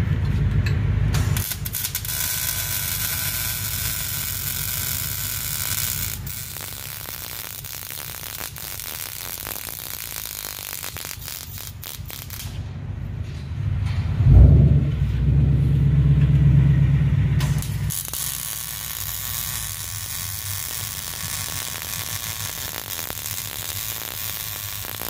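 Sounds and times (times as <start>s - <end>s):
welding arc hissing and crackling: 1.2s - 12.6s, 17.4s - 25.0s.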